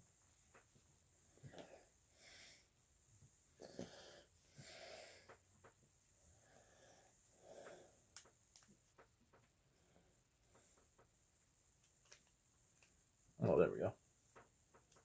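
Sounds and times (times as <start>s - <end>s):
breathing and nasal exhales: 3.6s - 5.4s.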